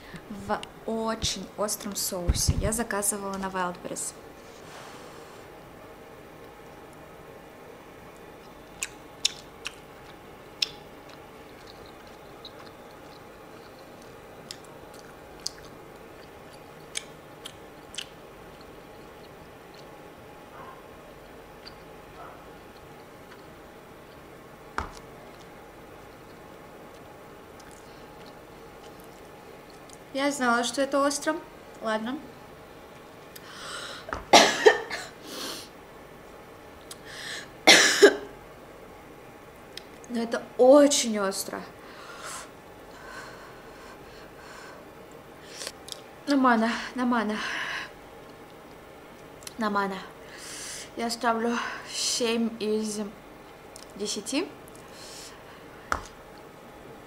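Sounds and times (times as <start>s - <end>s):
person chewing: 8.4s - 20.0s, 21.6s - 24.3s, 24.9s - 30.0s
woman coughing: 34.3s - 35.2s, 37.7s - 38.3s.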